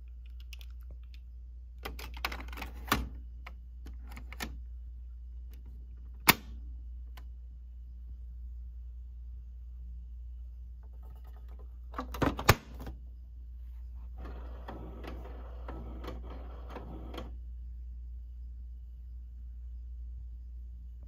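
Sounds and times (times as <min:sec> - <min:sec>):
printer mechanism clattering: 0:14.2 - 0:17.3.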